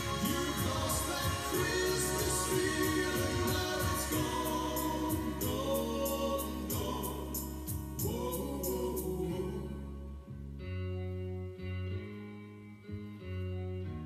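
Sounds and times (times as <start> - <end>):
band playing: 0.0 - 8.0
group of voices singing: 0.0 - 9.7.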